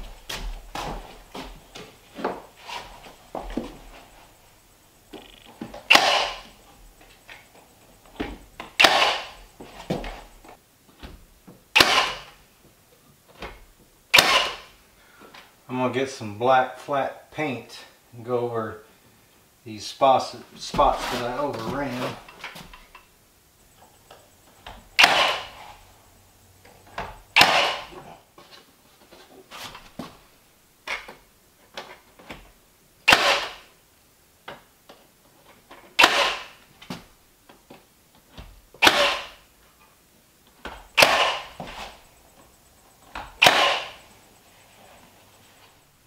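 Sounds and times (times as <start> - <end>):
nail gun firing into wood: 5.9 - 6.5, 8.7 - 9.4, 11.7 - 12.4, 14.1 - 14.7, 25.0 - 25.6, 27.4 - 28.0, 33.0 - 33.7, 36.0 - 36.6, 38.8 - 39.4, 41.0 - 41.6, 43.2 - 44.0.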